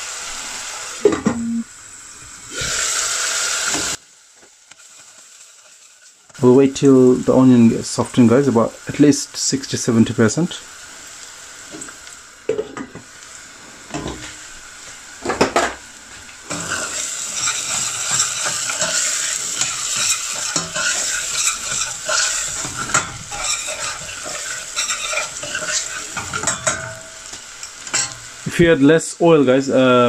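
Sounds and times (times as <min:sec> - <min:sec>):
onion sizzling in oil: 0:00.0 - 0:30.0
metal spoon scraping a pan: 0:16.5 - 0:28.2.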